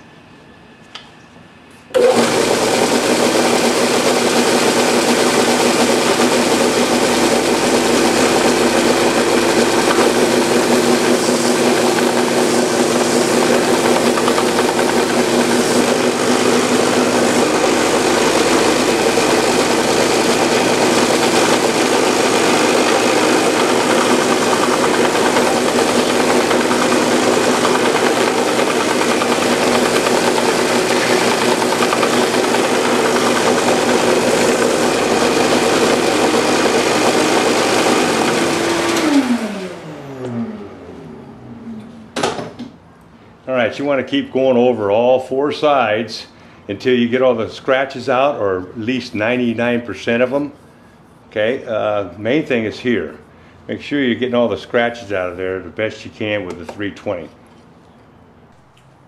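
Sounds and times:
belt sander running: 1.9s - 41.7s
wood sanding on belt: 2.5s - 38.6s.

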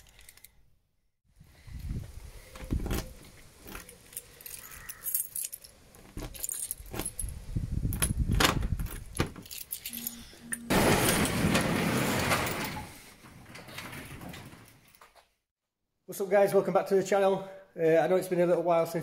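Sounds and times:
keys jangling in lock: 3.6s - 10.6s
metal garage door moving: 10.6s - 14.9s.

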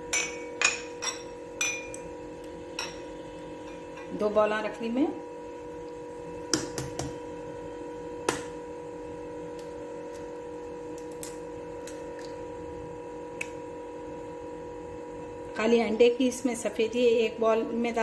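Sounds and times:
steady background hum: 0.0s - 18.0s.

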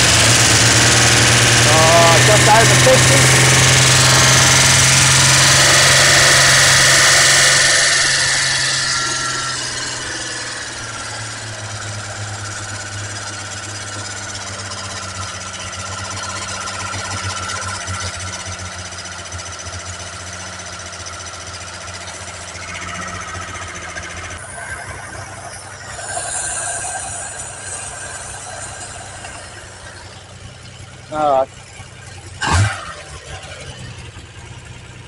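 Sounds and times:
engine running at fast idle: 0.0s - 35.0s.

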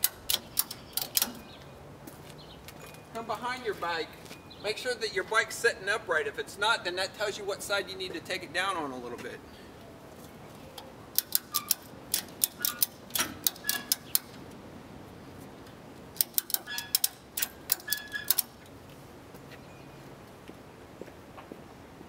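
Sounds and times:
ratchet strap clicking: 0.0s - 1.4s, 11.1s - 14.4s, 16.2s - 18.6s.

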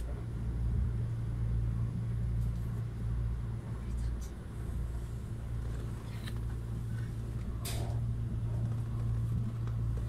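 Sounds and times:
train wheels rumbling on rail: 0.0s - 10.0s.

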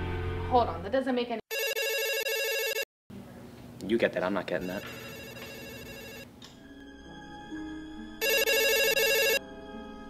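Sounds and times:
desk phone ringing: 1.5s - 2.9s, 4.6s - 6.3s, 8.2s - 9.4s
soft background music: 5.6s - 10.0s.

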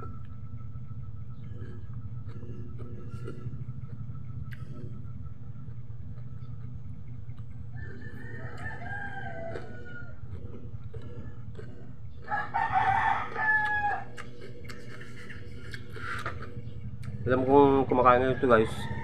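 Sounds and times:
steady low hum: 0.0s - 19.0s
rooster crowing: 7.8s - 10.3s, 12.2s - 14.3s, 17.9s - 19.0s.

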